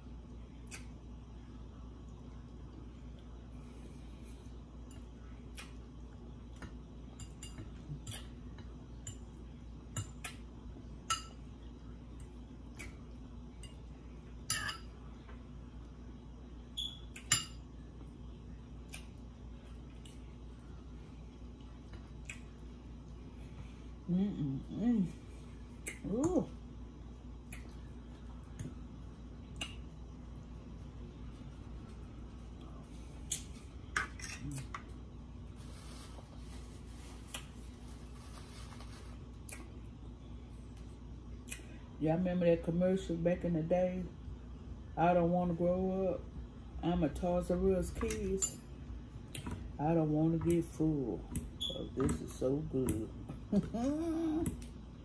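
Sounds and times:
fork clinking on glass bowls: 0:14.5 - 0:14.9
person humming: 0:53.6 - 0:54.6.

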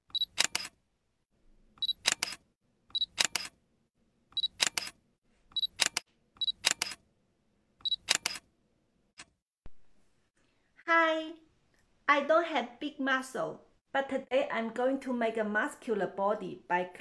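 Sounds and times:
camera focus beep: 0:01.8 - 0:02.4, 0:04.4 - 0:04.9, 0:05.6 - 0:07.0, 0:07.8 - 0:08.4
camera shutter clicks: 0:03.1 - 0:03.6, 0:04.4 - 0:04.9, 0:05.7 - 0:07.0, 0:07.9 - 0:08.4.

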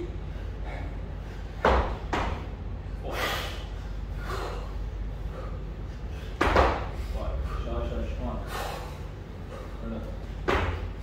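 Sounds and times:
low hum of hall: 0:00.0 - 0:11.0
sharp forceful breaths: 0:03.0 - 0:07.8, 0:08.4 - 0:09.8.

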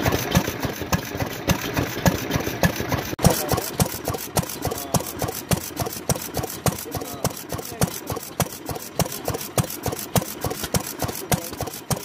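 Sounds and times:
stationary engine clacking: 0:00.0 - 0:12.0.

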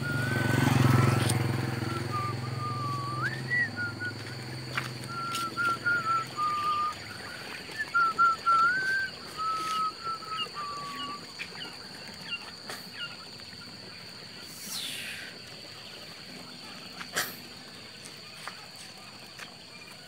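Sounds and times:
short rising chirps: 0:00.0 - 0:11.3
whistled notes: 0:00.0 - 0:11.4.

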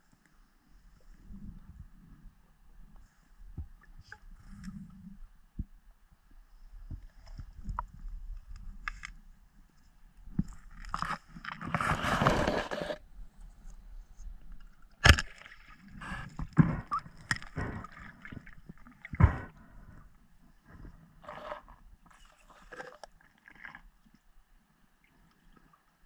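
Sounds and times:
underwater knocks and scrapes: 0:10.3 - 0:13.1, 0:14.2 - 0:23.8.

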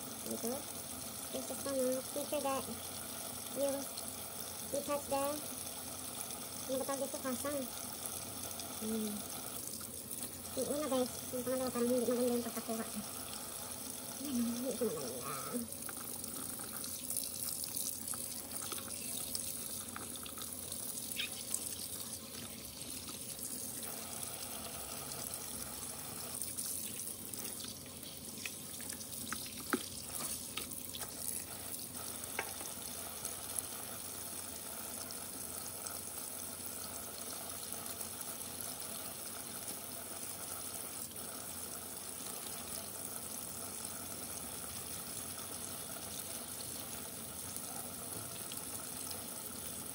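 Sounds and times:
tap running into steel sink: 0:32.3 - 0:32.8.

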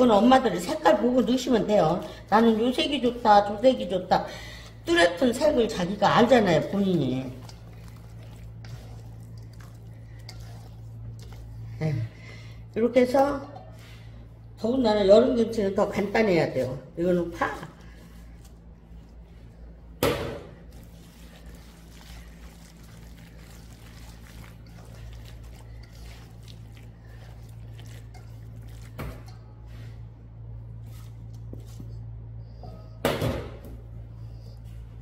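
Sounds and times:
steady low hum: 0:00.0 - 0:35.0
hands squishing paste: 0:01.4 - 0:12.1, 0:16.0 - 0:30.0.

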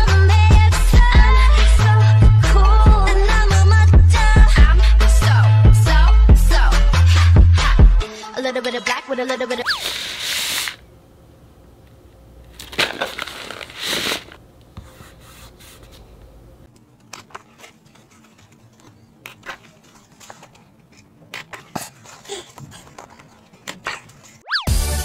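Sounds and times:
book pages turning: 0:09.8 - 0:10.8, 0:12.5 - 0:24.4
paper crinkling: 0:12.5 - 0:24.4.

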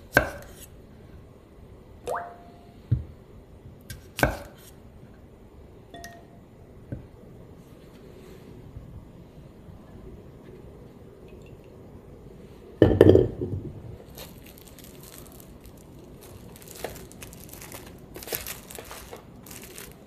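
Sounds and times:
cling film crinkling: 0:14.0 - 0:20.0.

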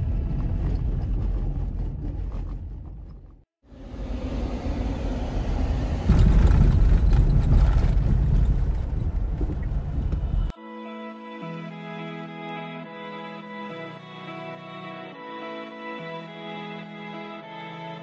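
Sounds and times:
car engine and tyres rumbling: 0:00.0 - 0:10.5.

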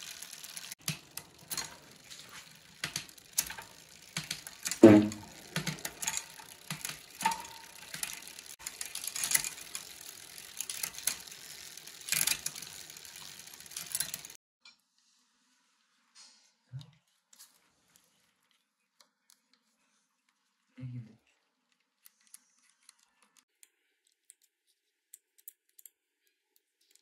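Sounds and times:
bicycle freewheel ticking: 0:00.0 - 0:14.4
thump: 0:04.8 - 0:05.2.

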